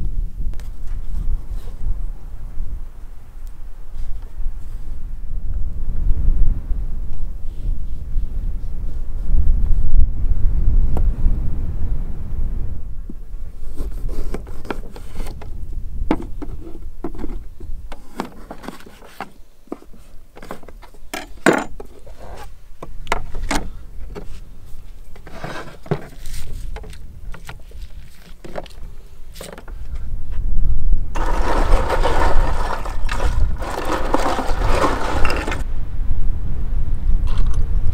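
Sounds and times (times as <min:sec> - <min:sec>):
wind rumble on microphone: 0:00.0 - 0:19.0, 0:19.7 - 0:37.9.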